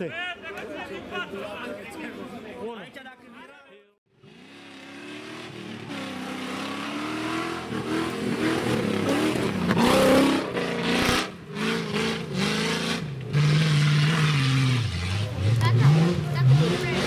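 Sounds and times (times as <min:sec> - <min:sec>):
off-road vehicle engine revving: 0:04.1 - 0:17.0.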